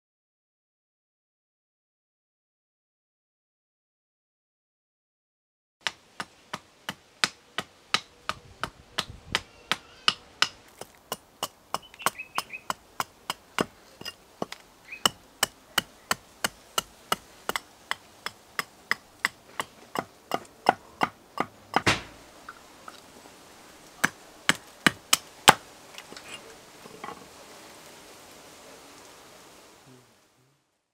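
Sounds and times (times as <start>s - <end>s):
axe chopping into wood: 5.8s - 22.2s, 24.0s - 25.6s.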